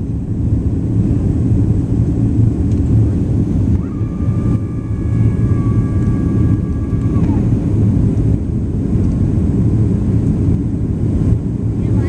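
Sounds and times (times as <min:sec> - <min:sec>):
airplane cabin rumble: 0:00.0 - 0:12.0
thin high whine: 0:03.8 - 0:07.9.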